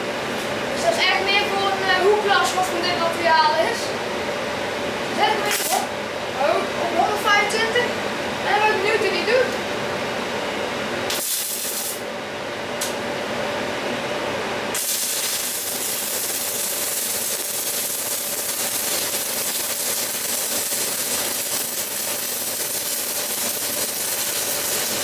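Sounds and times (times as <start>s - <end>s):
welding arc sputtering: 5.2s - 5.9s, 11.1s - 12.0s, 14.7s - 25.0s
welding arc hissing: 5.3s - 5.9s, 11.1s - 12.0s, 14.7s - 25.0s.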